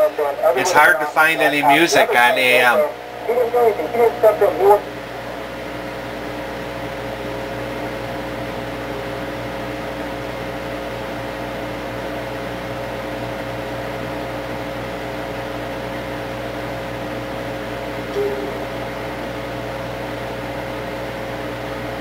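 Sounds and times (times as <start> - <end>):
radio static hiss: 0.0 - 5.8
faint steady hum: 0.0 - 22.0.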